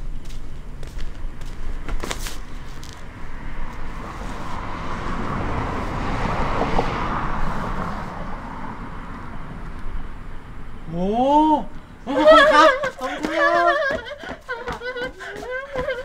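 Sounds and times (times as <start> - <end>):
road vehicle passing: 0.0 - 16.0.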